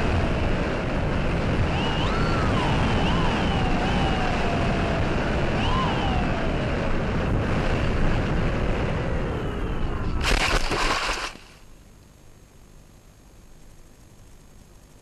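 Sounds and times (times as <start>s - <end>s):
faint gliding whine: 0.0s - 15.0s
model plane motor and propeller: 9.8s - 11.6s
rushing air: 10.1s - 11.6s
plane ploughing into tall grass: 10.2s - 11.6s.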